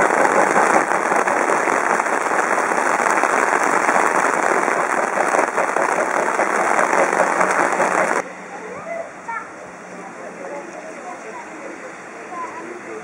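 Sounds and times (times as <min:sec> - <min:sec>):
heavy rain falling: 0:00.0 - 0:08.2.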